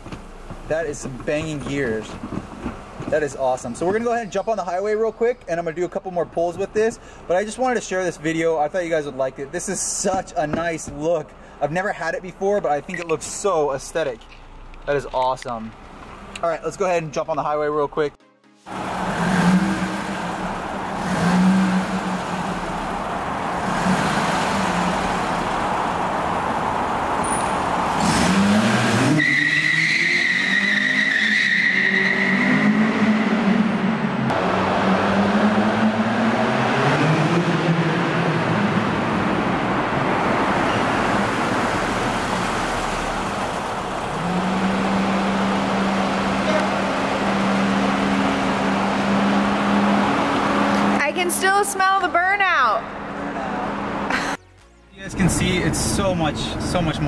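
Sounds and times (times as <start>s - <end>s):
car engine revving: 18.7s - 54.4s, 55.0s - 57.0s
tire squeal: 27.1s - 34.0s.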